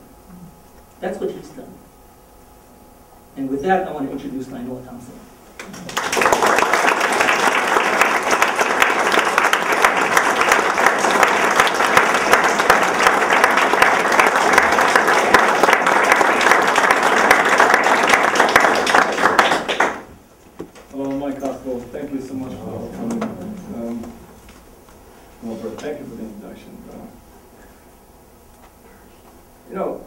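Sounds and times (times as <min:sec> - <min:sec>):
audience applauding: 0:05.6 - 0:20.1.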